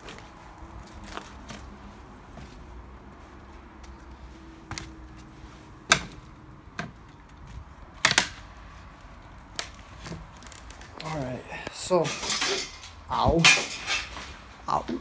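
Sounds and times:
knocks and clatters of debris: 0:12.0 - 0:14.4.

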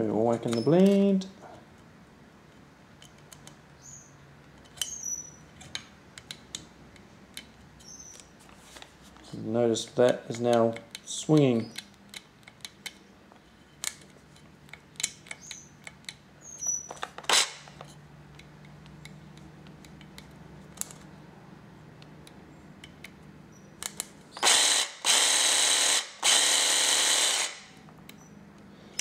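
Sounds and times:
tool handling clicks: 0:00.4 - 0:01.1, 0:02.5 - 0:03.6, 0:04.4 - 0:21.1, 0:22.0 - 0:29.0
cordless jigsaw running: 0:24.4 - 0:27.8.

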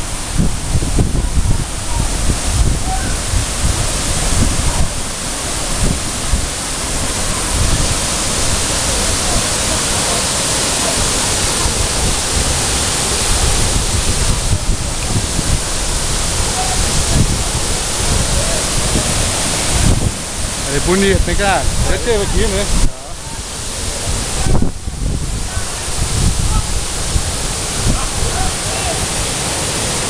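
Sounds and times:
waterfall rushing: 0:00.0 - 0:30.0.

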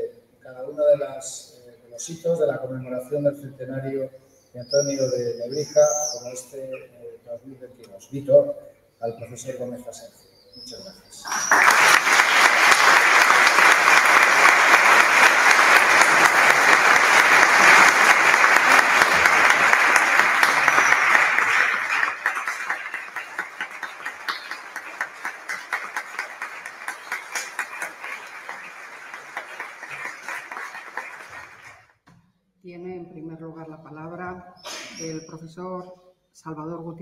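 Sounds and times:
audience applauding: 0:11.2 - 0:31.9.

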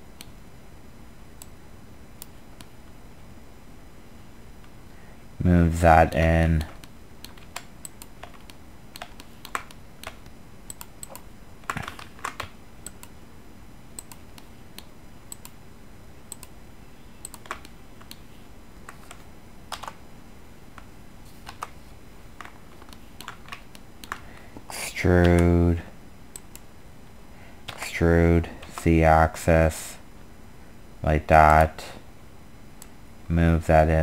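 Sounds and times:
faint steady hiss: 0:00.0 - 0:34.0
keyboard and mouse clicks: 0:06.6 - 0:13.2, 0:14.0 - 0:15.6, 0:17.2 - 0:18.2, 0:18.8 - 0:20.0, 0:21.4 - 0:21.8, 0:22.4 - 0:24.2.

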